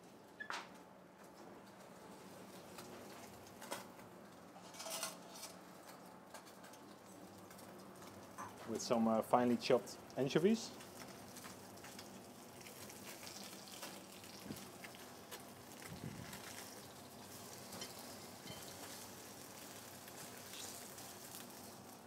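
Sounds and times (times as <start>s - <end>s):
food sizzling in a pan: 10.4s - 22.0s.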